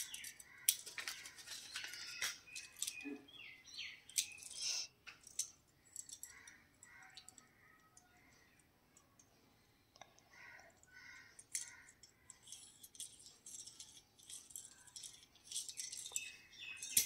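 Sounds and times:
toy car and key ring rattling: 0:00.0 - 0:03.2, 0:04.0 - 0:07.6, 0:10.6 - 0:17.0.

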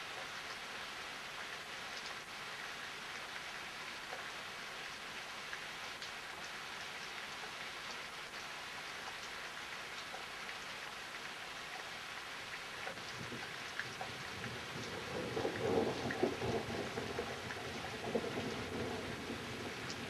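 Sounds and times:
steady rain hiss: 0:00.0 - 0:20.0
raindrop ticks: 0:04.0 - 0:04.4, 0:05.5 - 0:09.4, 0:10.0 - 0:10.7, 0:12.5 - 0:20.0.

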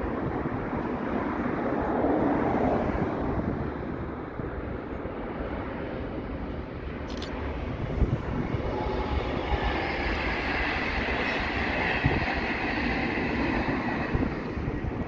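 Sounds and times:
wheel and rail whine: 0:00.0 - 0:15.0
train wheels rumbling: 0:05.2 - 0:15.0.

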